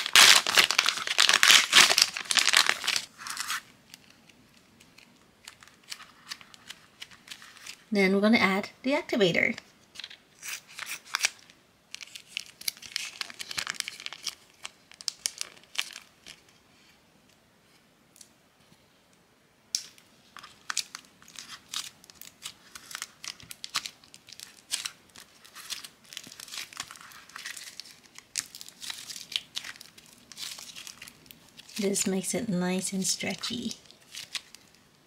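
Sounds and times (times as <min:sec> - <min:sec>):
slime crackling and tearing: 0:00.0 - 0:03.6, 0:10.4 - 0:11.4, 0:12.0 - 0:16.4, 0:19.8 - 0:31.8, 0:33.5 - 0:34.7.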